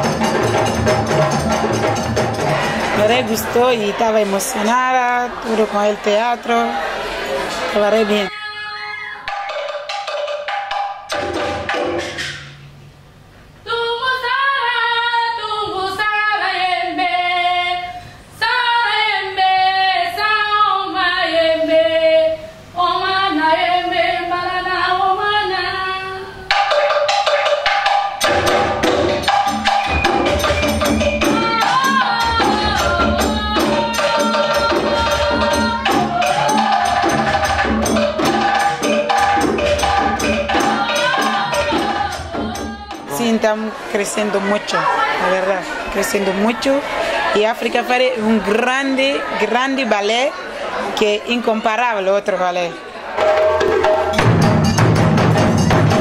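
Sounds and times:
drum ensemble playing: 0.0s - 8.3s, 9.2s - 13.3s, 26.5s - 46.9s, 53.1s - 56.0s.

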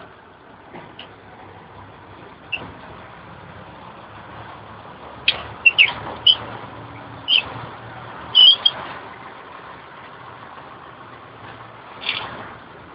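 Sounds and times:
lorry engine hum: 0.0s - 12.9s
short sharp high chirps: 8.4s - 8.8s.

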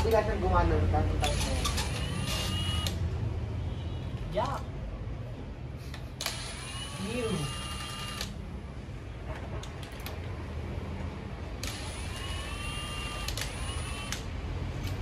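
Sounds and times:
sharp clicks: 13.2s - 15.0s.

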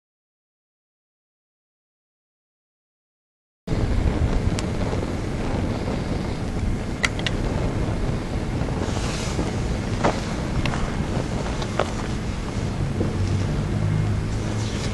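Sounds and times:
fire rushing: 3.7s - 14.9s
sharp pops from burning: 3.8s - 13.6s.

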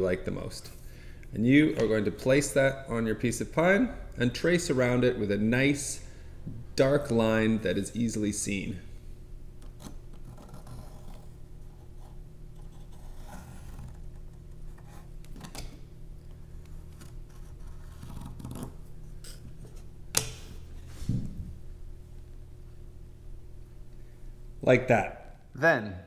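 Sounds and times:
pencil scratching on wood: 9.6s - 14.1s.

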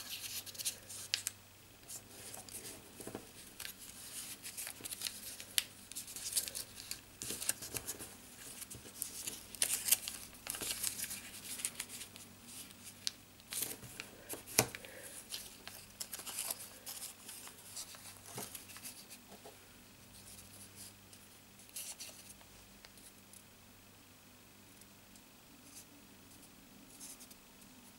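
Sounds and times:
paper crinkling: 0.0s - 19.2s.

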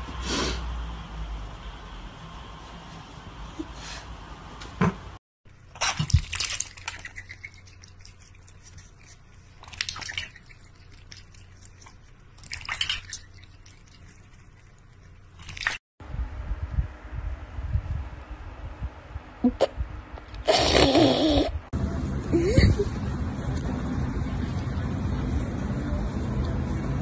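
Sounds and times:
cat lapping water from bowl: 5.8s - 15.8s.

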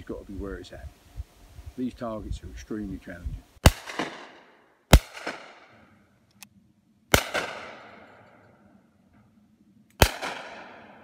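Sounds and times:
shotgun shots echoing: 3.6s - 5.8s, 7.1s - 8.4s, 10.0s - 11.0s.

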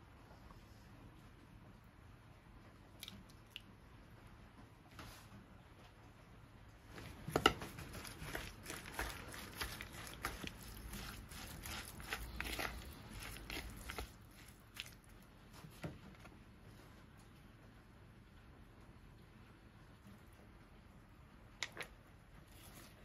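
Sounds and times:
wet squishing of tossed salad: 6.9s - 15.6s.

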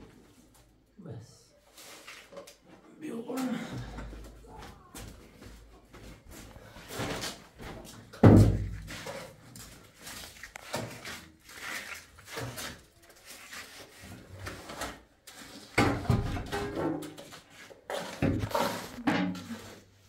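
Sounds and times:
knocks and scrapes: 6.2s - 20.0s.

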